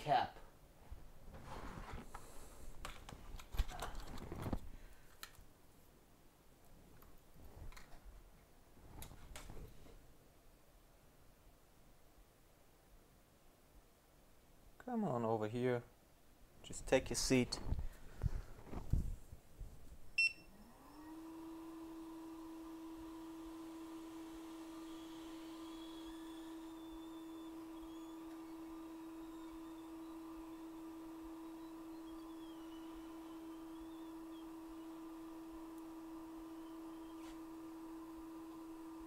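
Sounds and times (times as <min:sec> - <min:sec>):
small blower fan whining: 0:20.2 - 0:39.0.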